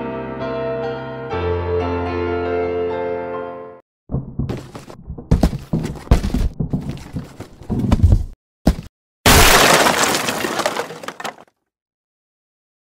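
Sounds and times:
wooden crate knocking: 0:04.1 - 0:08.9
crate smashing crash: 0:08.0 - 0:11.4.

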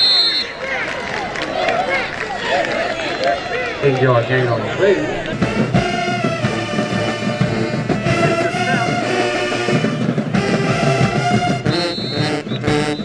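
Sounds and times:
brass band playing: 0:04.4 - 0:13.0
drums: 0:05.0 - 0:13.0.

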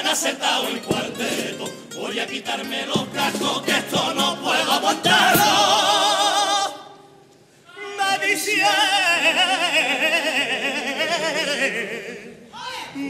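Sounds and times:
male choir singing: 0:00.0 - 0:07.0, 0:07.8 - 0:13.0
man singing with vibrato: 0:00.0 - 0:13.0.

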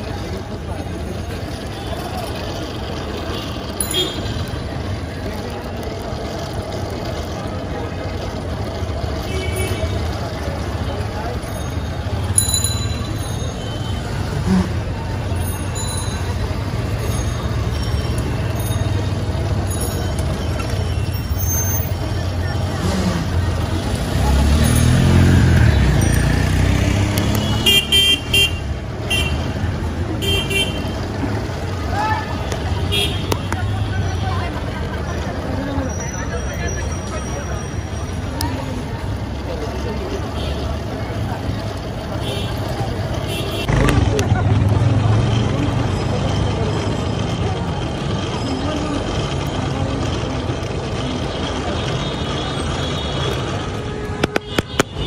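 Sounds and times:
traffic engine rumble: 0:00.0 - 0:55.0
vehicle horn beeps: 0:03.4 - 0:04.4.

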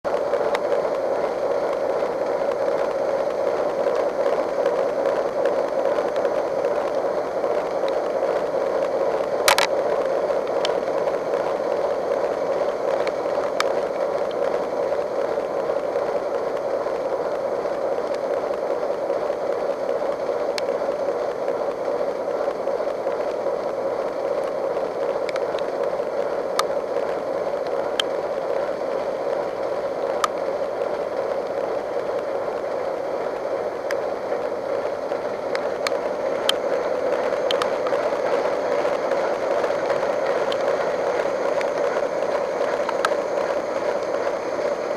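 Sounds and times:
sharp clicks: 0:09.4 - 0:09.8.

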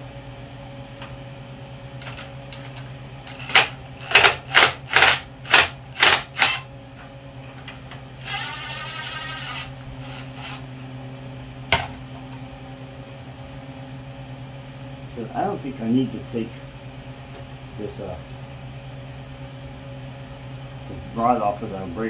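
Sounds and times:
impact driver whirring freely: 0:02.0 - 0:06.7, 0:08.2 - 0:10.9
impact driver hammering bursts: 0:03.3 - 0:06.7.

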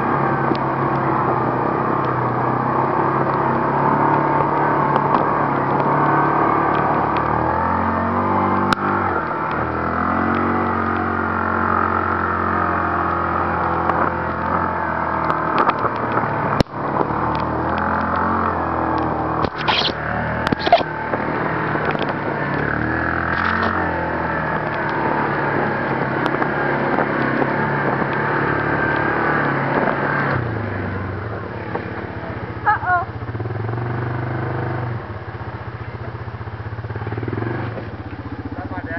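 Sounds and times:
atv engine revving: 0:00.0 - 0:38.9.

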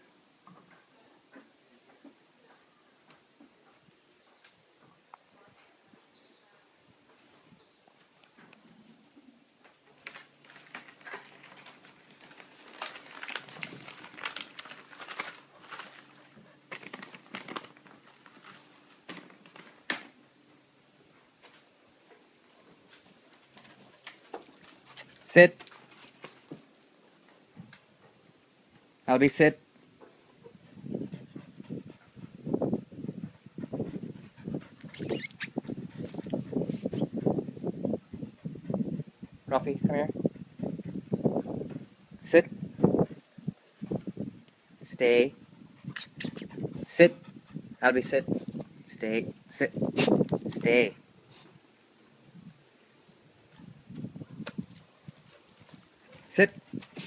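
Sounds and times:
dogs grunting and breathing: 0:45.4 - 0:48.7, 0:54.6 - 0:57.0
high-pitched rustle: 0:54.5 - 0:57.0.

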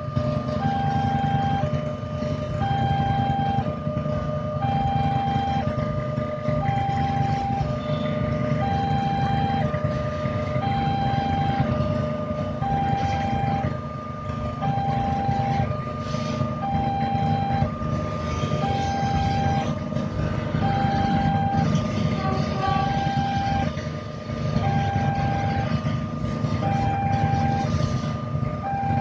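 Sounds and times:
two-tone level crossing alarm: 0:00.0 - 0:23.8, 0:24.5 - 0:29.0
idling motorbike and car engines: 0:00.0 - 0:29.0.

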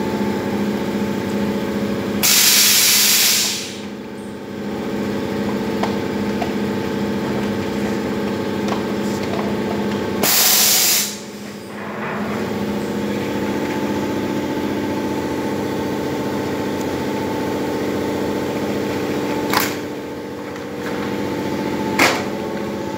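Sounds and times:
packing machine hum: 0:00.0 - 0:22.9
compressed air hiss: 0:02.2 - 0:03.8, 0:10.2 - 0:11.5.

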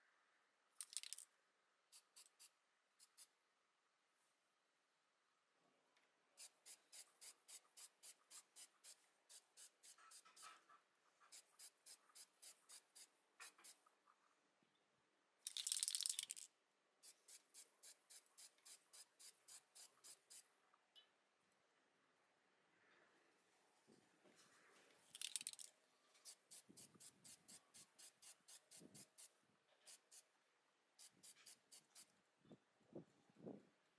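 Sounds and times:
spray can ball rattling: 0:00.8 - 0:01.3, 0:15.4 - 0:20.4, 0:25.1 - 0:30.2
spray paint burst: 0:06.4 - 0:10.5, 0:11.3 - 0:13.8, 0:17.0 - 0:20.4, 0:26.2 - 0:30.2, 0:31.0 - 0:32.1.

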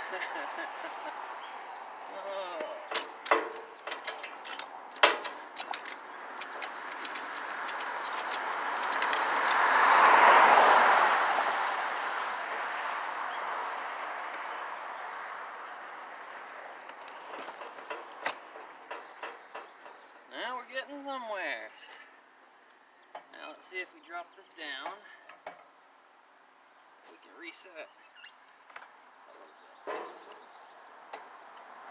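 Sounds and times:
metallic clicks of rigging: 0:02.9 - 0:10.2.

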